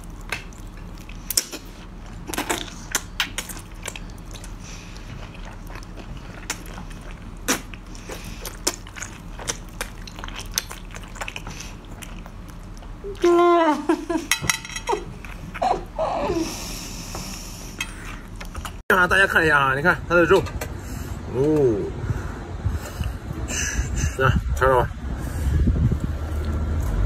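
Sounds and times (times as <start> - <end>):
wet chewing and smacking: 0.0 - 13.4, 14.2 - 16.0, 17.9 - 18.8.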